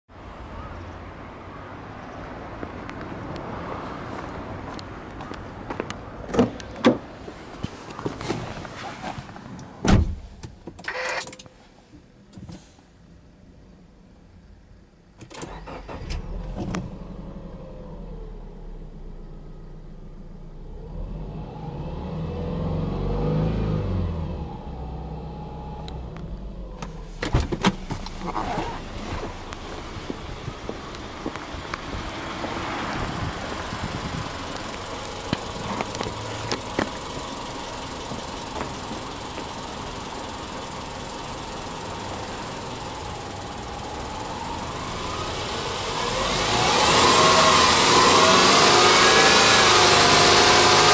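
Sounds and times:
car engine starting and idling: 4.2s - 50.9s
car engine revving: 15.4s - 50.9s.

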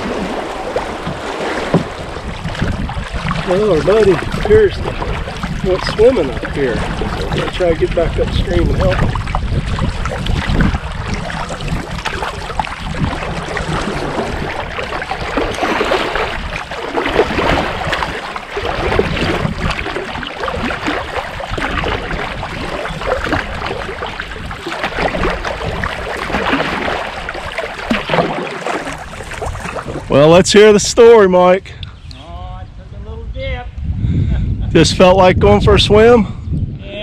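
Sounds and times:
river water rushing: 0.0s - 7.5s, 10.2s - 30.2s
water splashing against boat: 0.0s - 31.2s.

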